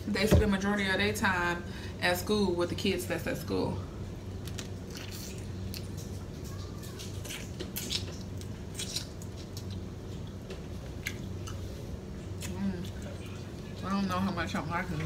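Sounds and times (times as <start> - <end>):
steady low hum: 0.0 - 15.0
person chewing: 4.5 - 13.7.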